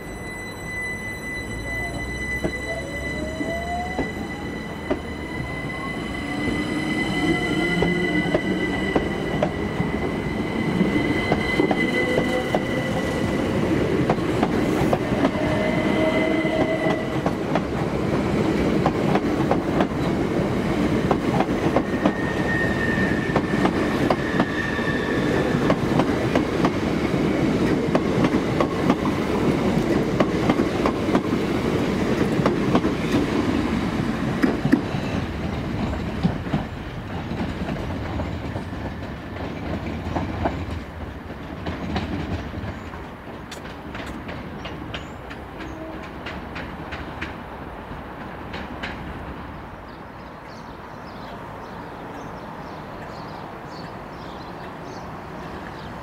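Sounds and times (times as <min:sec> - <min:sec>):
wheel squeal: 0:00.0 - 0:13.4, 0:21.8 - 0:25.6
train wheels clicking over rail joints: 0:25.3 - 0:49.2.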